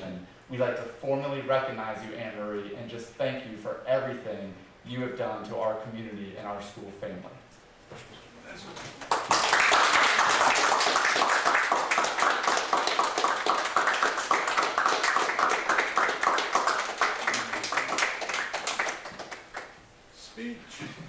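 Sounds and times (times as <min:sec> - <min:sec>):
small group applauding: 0:08.8 - 0:19.8.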